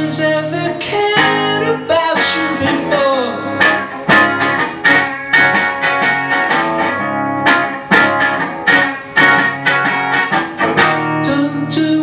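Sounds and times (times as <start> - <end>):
electric guitar strummed chords: 0.0 - 12.0.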